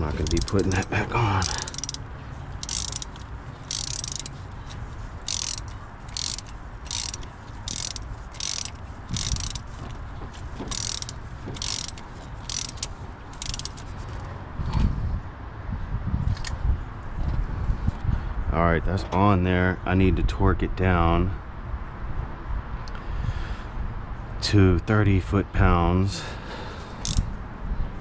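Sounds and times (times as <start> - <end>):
socket ratchet clicking: 0.0 - 13.9, 27.0 - 27.3.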